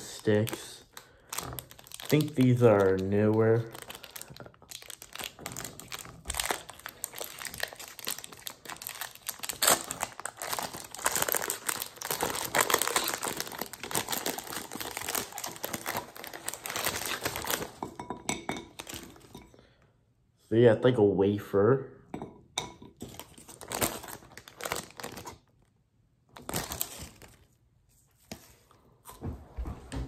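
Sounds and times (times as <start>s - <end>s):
wrapper crinkling: 0.0s - 17.9s, 18.7s - 19.4s, 23.0s - 25.6s, 26.3s - 27.6s.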